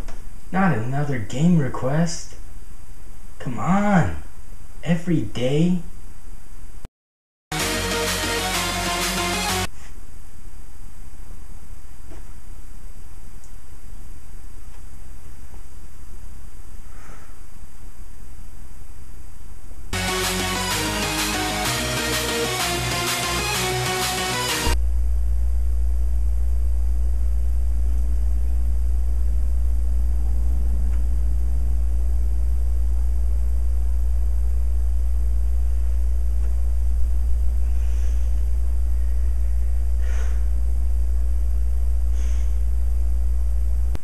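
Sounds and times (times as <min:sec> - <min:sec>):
deep hum: 0:07.5 - 0:09.8, 0:19.9 - 0:44.0
person breathing: 0:16.8 - 0:17.6, 0:37.6 - 0:40.5, 0:42.1 - 0:42.7.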